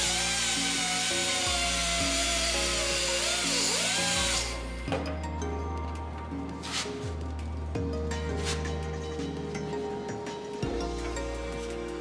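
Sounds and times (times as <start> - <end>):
air cutoff tool grinding metal: 0.0 - 4.6
background music: 0.0 - 12.0.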